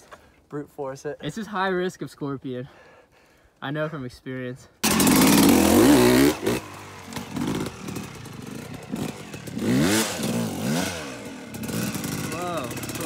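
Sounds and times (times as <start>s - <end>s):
distant dirt bike engine revving: 4.8s - 13.0s.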